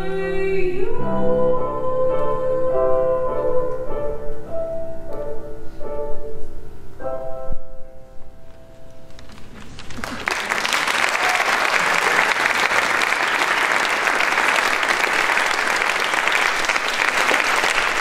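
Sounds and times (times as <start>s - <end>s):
piano notes: 0.0s - 9.6s
audience applauding: 9.1s - 18.0s.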